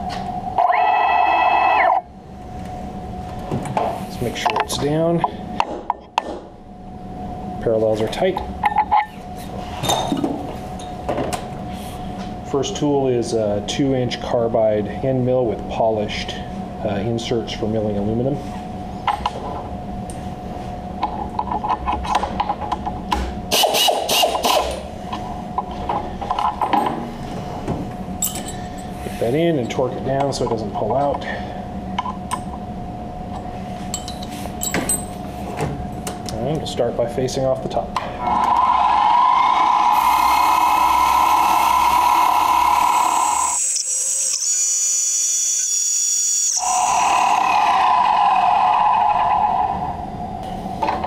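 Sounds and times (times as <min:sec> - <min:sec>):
high-pitched cutting whine: 0:00.0 - 0:02.3, 0:38.2 - 0:50.5
milling machine drone: 0:00.0 - 0:03.4, 0:38.0 - 0:50.8
steady hum: 0:00.0 - 0:51.0.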